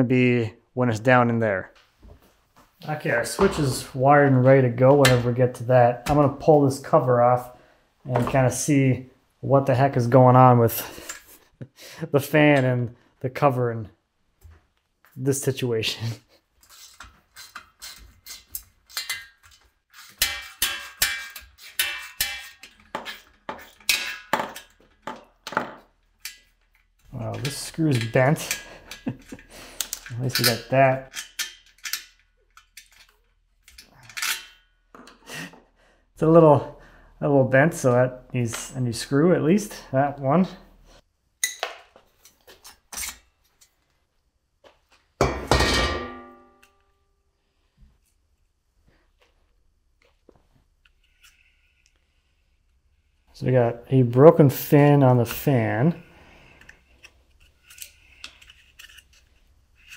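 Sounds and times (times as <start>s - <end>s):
metal cover ringing: 45.2s - 46.7s.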